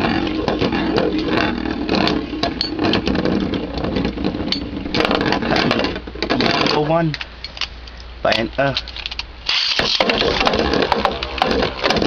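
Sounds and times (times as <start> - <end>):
spinning tops whirring grind: 0.0 - 7.0, 9.4 - 12.0.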